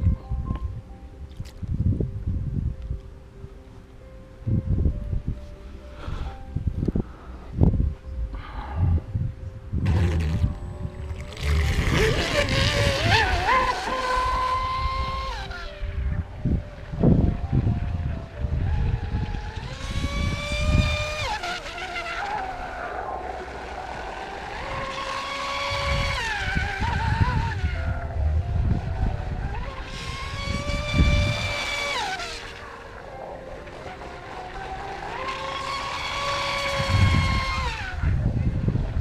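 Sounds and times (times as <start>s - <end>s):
low wind rumble: 0.0s - 39.0s
electric motor whine: 9.7s - 39.0s.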